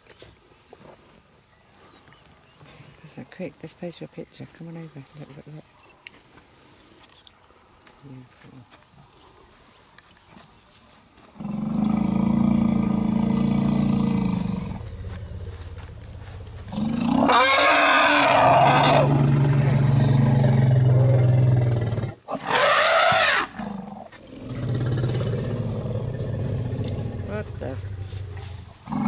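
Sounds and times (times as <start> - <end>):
elephant low calls: 11.4 - 29.0
elephant screaming: 16.7 - 19.2, 22.4 - 23.6.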